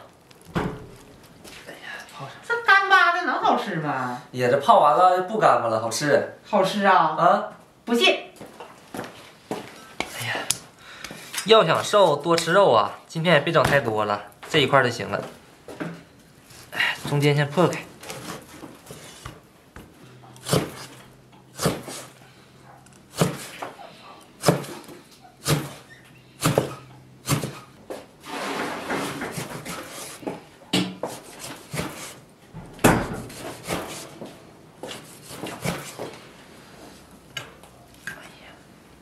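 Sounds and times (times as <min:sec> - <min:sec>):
cleaver chopping on wooden block: 0:23.1 - 0:23.6, 0:24.4 - 0:25.8, 0:26.4 - 0:27.6.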